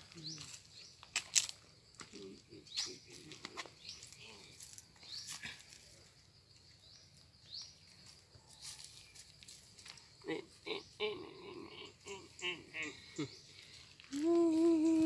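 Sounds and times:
dry leaves crunching underfoot: 0.0 - 6.0, 7.9 - 10.2
monkey grunting: 10.2 - 13.5.

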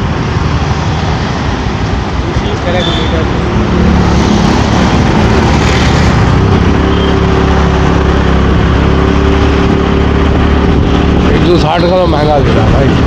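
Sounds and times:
road traffic noise: 0.0 - 13.0.

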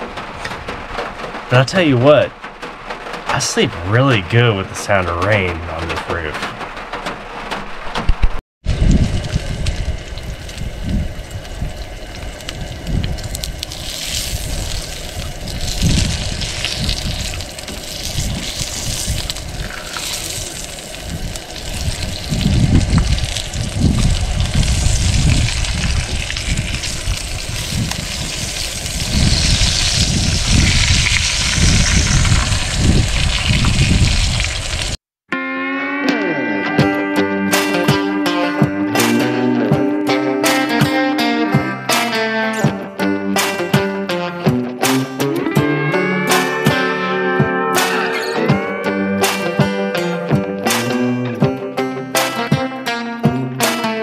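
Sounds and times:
wind gusting on microphone: 3.3 - 35.0
bacon sizzling on a griddle: 9.0 - 35.0.

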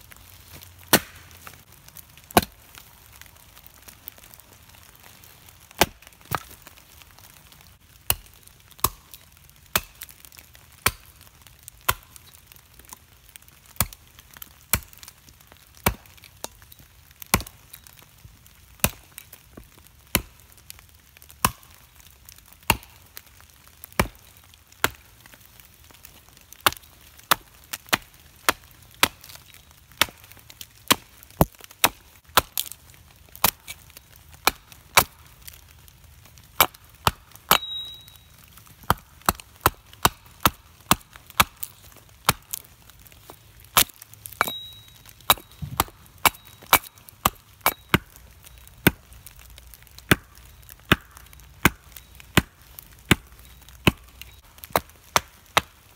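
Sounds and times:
axe chopping wood: 0.5 - 1.6, 2.3 - 2.6, 5.7 - 6.6, 8.1 - 9.1, 9.7 - 11.1, 11.8 - 12.1, 15.7 - 16.6, 17.3 - 17.5, 20.1 - 20.4, 21.4 - 21.8, 22.6 - 23.0, 24.8 - 25.0, 26.6 - 29.4, 30.9 - 32.8, 33.4 - 33.8, 34.4 - 35.2, 36.6 - 38.0, 38.8 - 42.6, 43.3 - 48.2, 50.0 - 55.8.

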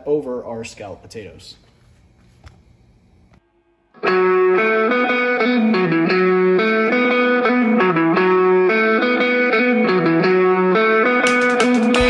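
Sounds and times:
electric guitar riff: 3.9 - 12.0.

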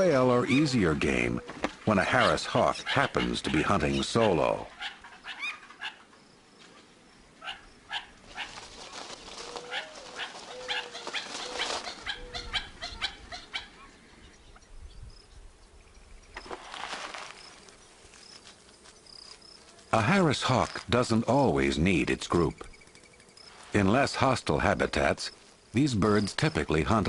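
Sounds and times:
quail call notes: 7.4 - 14.6
wings flapping: 8.2 - 12.6.

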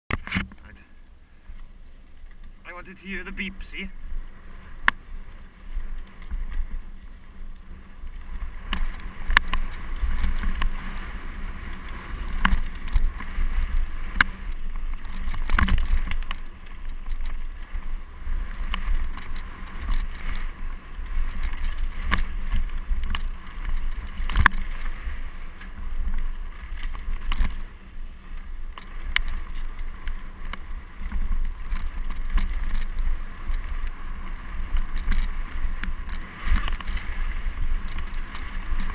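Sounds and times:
bike rumbling on dirt trail: 0.1 - 38.9
bike knocks and rattles: 8.2 - 27.7, 28.7 - 38.9.

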